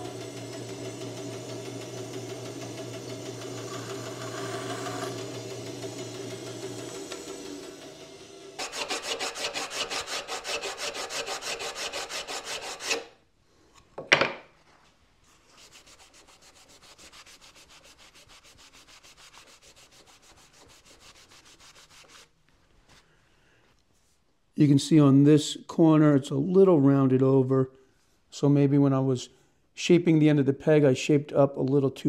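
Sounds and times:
bandsaw hum: 0.0s - 13.2s
rag rubbing on wooden board: 15.5s - 22.3s.

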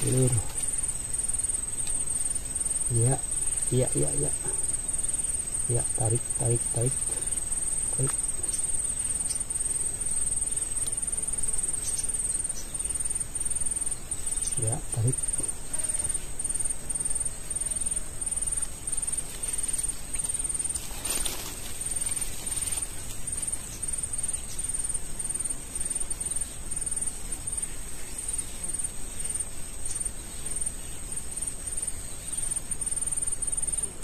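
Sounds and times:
rustling background: 0.0s - 12.2s, 18.5s - 24.9s
insects droning: 0.0s - 34.0s.

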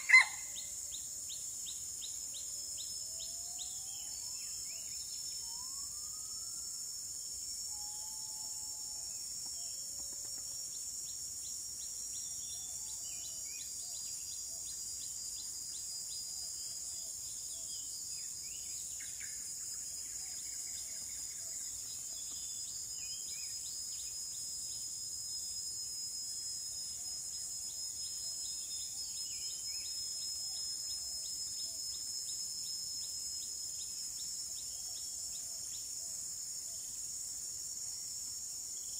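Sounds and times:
bird chirps: 0.0s - 0.7s
high-pitched insect chorus: 0.0s - 38.9s.

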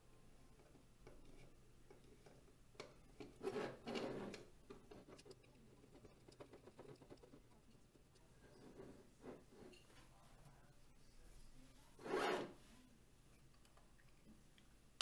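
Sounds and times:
rubbing scrape: 3.3s - 5.3s, 8.6s - 9.8s, 11.9s - 12.7s.

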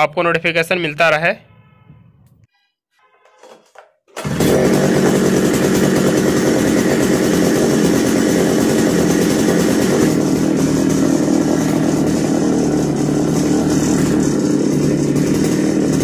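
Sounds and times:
recoil starter pull: 4.1s - 16.0s
small petrol engine running: 4.2s - 16.0s.

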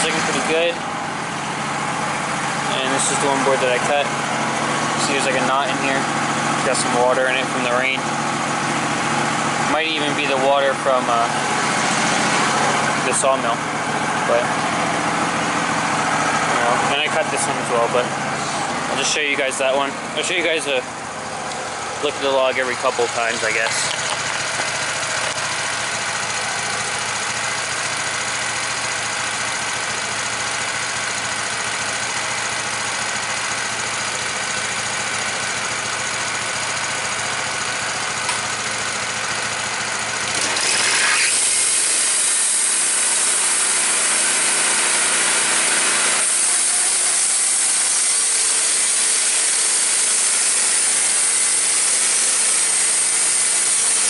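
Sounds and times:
sawmill engine running: 0.0s - 54.0s
band saw blade cutting log: 40.2s - 54.0s.

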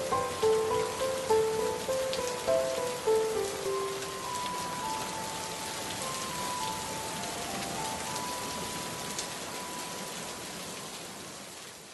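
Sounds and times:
soft background music: 0.0s - 11.0s
steady rain falling: 0.0s - 11.9s.

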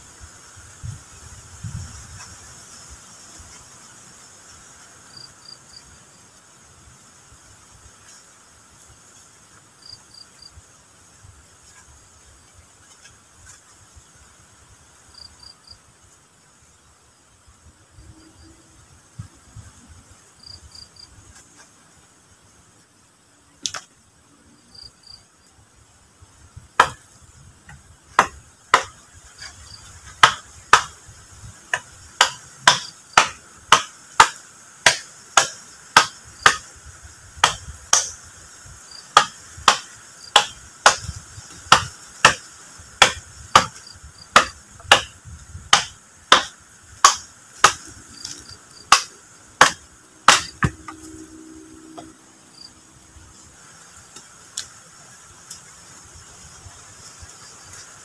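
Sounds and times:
insects chirring: 0.0s - 58.0s
machete chopping wood: 23.6s - 23.9s, 26.8s - 27.0s, 28.1s - 29.0s, 30.1s - 31.0s, 31.7s - 36.7s, 37.4s - 38.2s, 39.2s - 51.1s.

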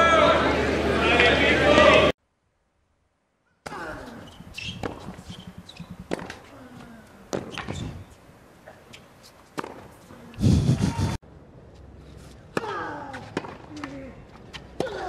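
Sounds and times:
racket striking tennis ball: 3.6s - 6.5s, 7.3s - 8.1s, 9.5s - 10.0s, 12.5s - 14.0s
shoes squeaking on court: 4.0s - 10.3s.

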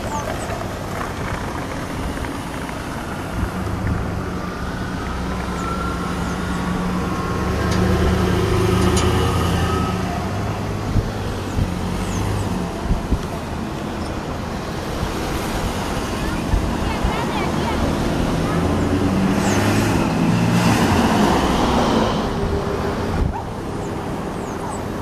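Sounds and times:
vehicle passing: 0.0s - 25.0s.

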